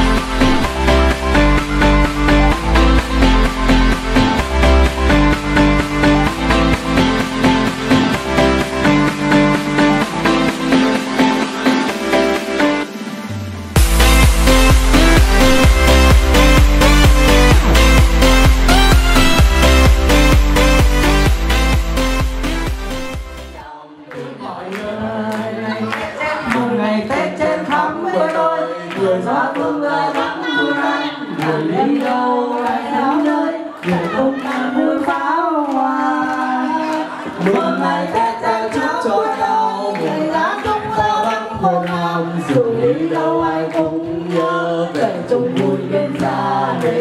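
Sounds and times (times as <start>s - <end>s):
group of voices singing: 23.4s - 47.0s
person singing into microphone: 23.6s - 47.0s
hand claps: 24.1s - 30.3s, 33.7s - 37.7s.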